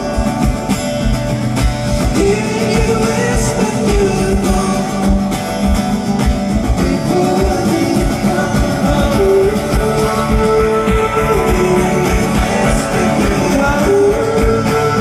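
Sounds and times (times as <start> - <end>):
live acoustic guitar: 0.0 - 15.0
wordless held singing: 6.7 - 15.0.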